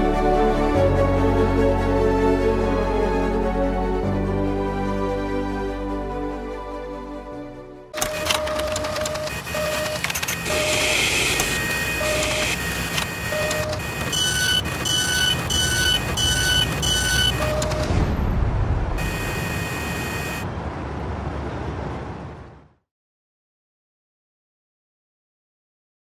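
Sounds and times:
mechanical whirring and clicking: 8.0 - 18.0
short electronic beeps: 8.0 - 18.0, 19.0 - 20.4.

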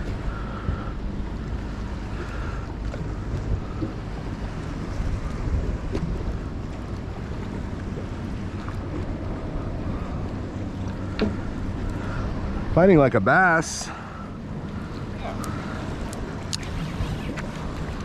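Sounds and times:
wind buffeting microphone: 0.0 - 13.7
choppy water: 0.0 - 18.0
outboard motor idling: 0.0 - 18.0.

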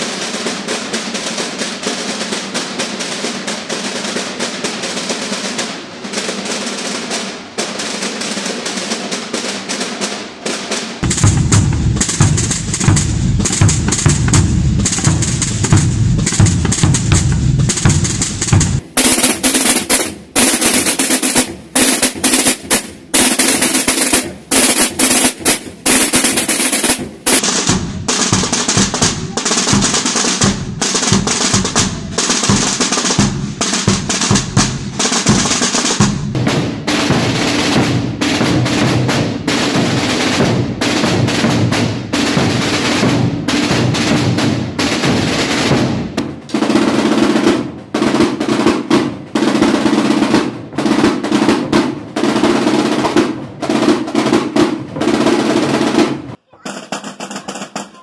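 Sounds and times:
snare drum rolls: 0.0 - 58.0
bass drums beating: 11.0 - 19.0, 27.0 - 45.2.

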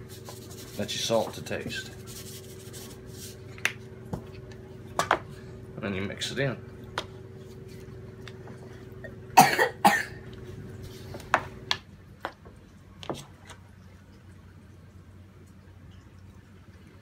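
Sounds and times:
person coughing: 9.0 - 10.2.

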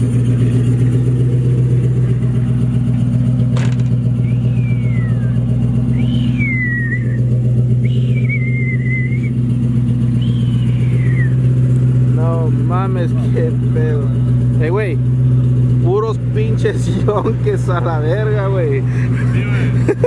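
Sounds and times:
truck engine idling: 0.0 - 20.0
high falling whistles: 4.1 - 11.5.

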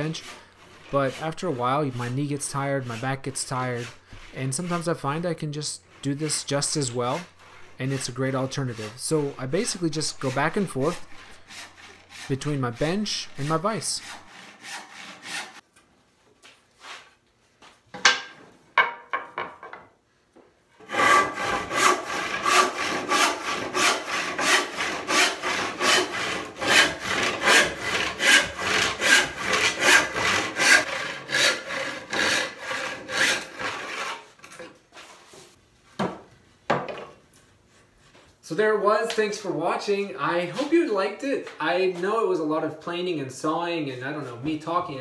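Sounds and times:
hand saw strokes: 0.0 - 15.6, 20.8 - 35.5
wooden knocks: 18.0 - 19.8.

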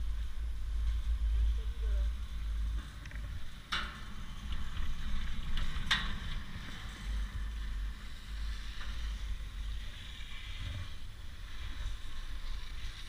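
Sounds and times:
wind rumble on microphone: 0.0 - 13.0
chairlift grip over rollers: 2.8 - 13.0.

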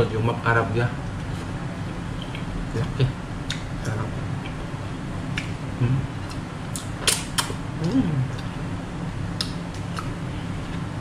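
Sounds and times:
low room hum: 0.0 - 11.0
voice murmuring: 7.8 - 8.4.

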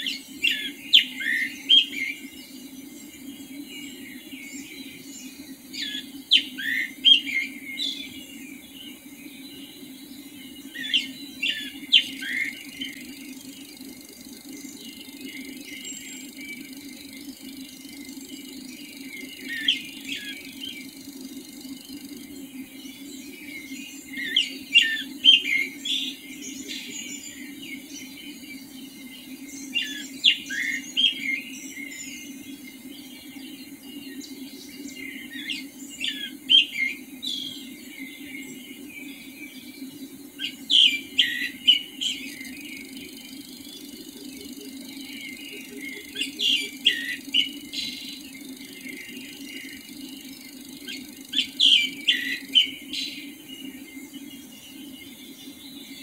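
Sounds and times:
songbird chirping: 0.0 - 56.0
steady low hum: 0.0 - 56.0.

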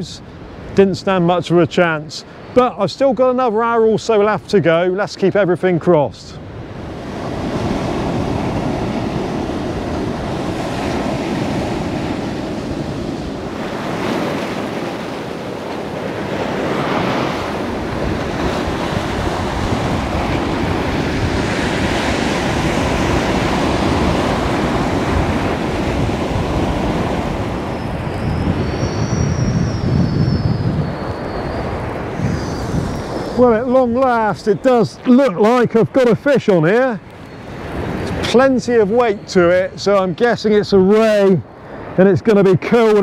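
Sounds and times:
wind blowing: 0.0 - 43.0
waves breaking on rocks: 6.8 - 27.9.

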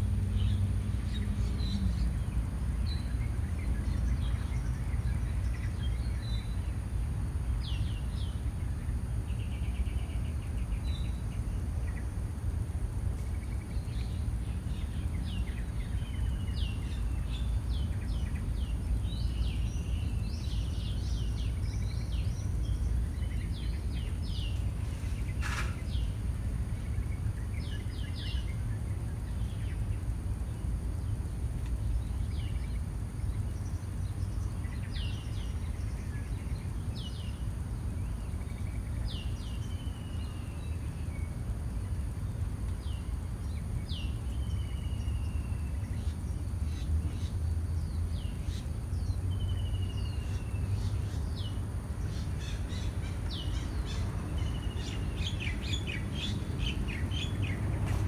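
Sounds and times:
small songbirds chirping: 0.0 - 58.0.

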